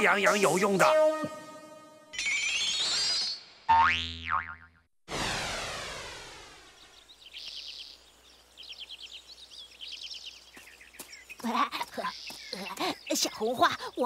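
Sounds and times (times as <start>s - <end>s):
faint forest ambience: 5.1s - 14.0s
birds chirping in rapid trills: 6.5s - 14.0s.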